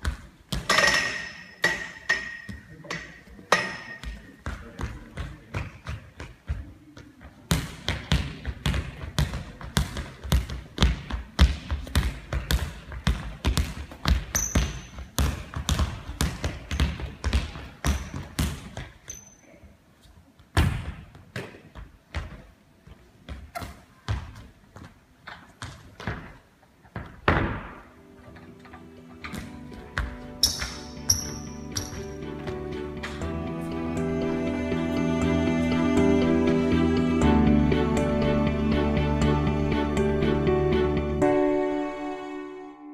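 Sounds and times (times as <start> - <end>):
ball bouncing on wooden floor: 7.5 - 19.2, 29.3 - 32.6
shoe squeaks: 14.3 - 15.1, 19.0 - 19.5, 30.4 - 32.2.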